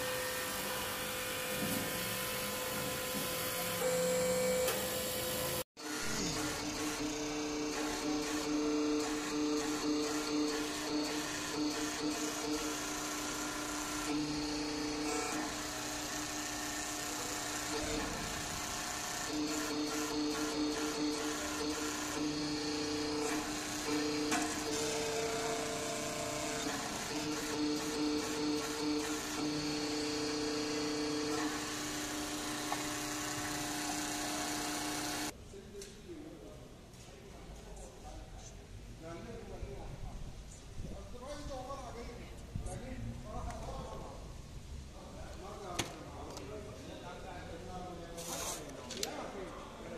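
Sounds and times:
electric pump motor humming: 0.0 - 35.3.

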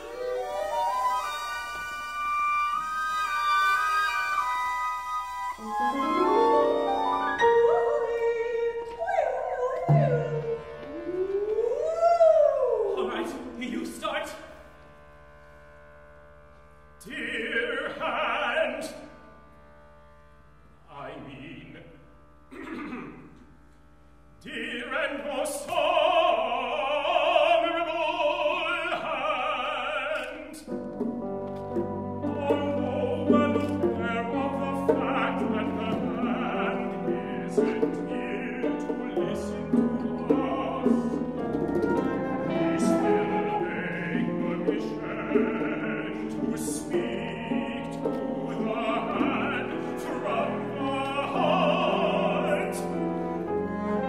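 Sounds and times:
strings and piano ensemble: 0.0 - 12.0, 25.2 - 54.0
operatic singing: 5.3 - 14.2, 17.0 - 19.3, 24.4 - 54.0.

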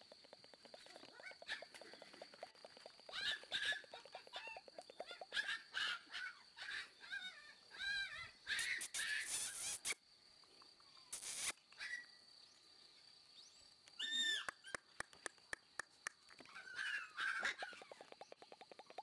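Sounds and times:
high arching animal calls: 0.0 - 10.0, 11.0 - 12.1, 14.0 - 14.9, 16.5 - 19.0.

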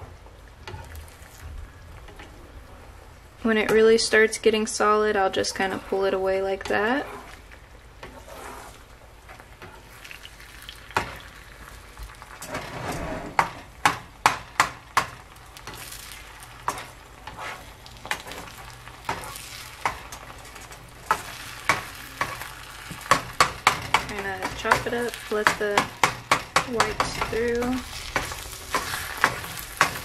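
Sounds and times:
faint frying hiss: 0.0 - 30.0
spatula scraping and tapping pan: 12.4 - 30.0.

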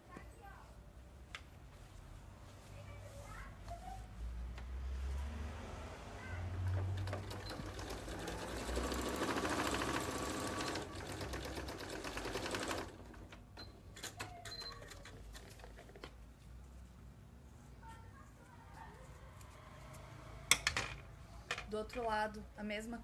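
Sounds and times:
sewing machine stitching: 6.6 - 13.4.

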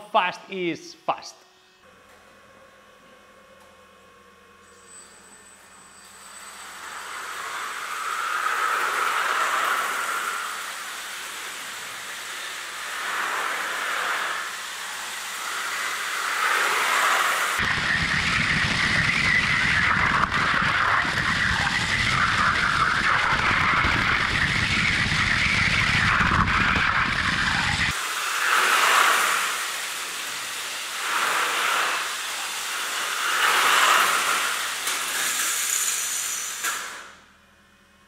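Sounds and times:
toy train running on track: 4.9 - 17.6.

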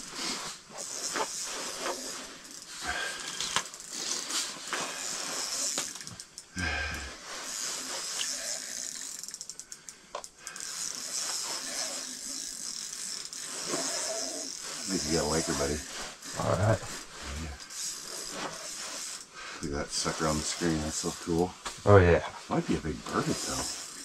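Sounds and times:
fishing reel clicking: 0.1 - 19.3, 20.0 - 21.4, 23.1 - 24.0
steady high hiss: 13.4 - 24.0.

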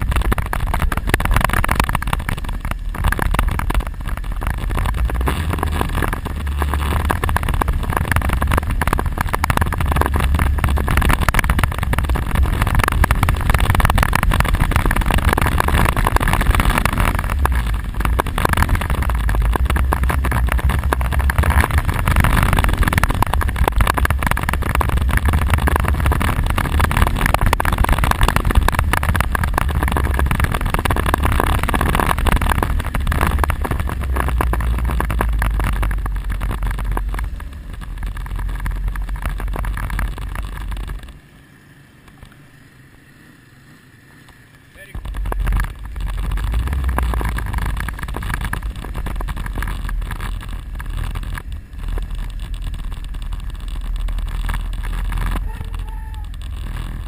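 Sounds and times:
wind buffeting microphone: 0.0 - 41.1
quad bike engine running: 0.0 - 57.0.

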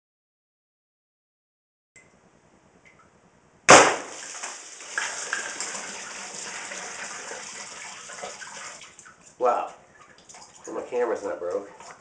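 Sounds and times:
air rifle shot: 3.7 - 4.2
plastic jug bursting: 3.7 - 5.8
water spraying and splashing: 3.7 - 9.2.

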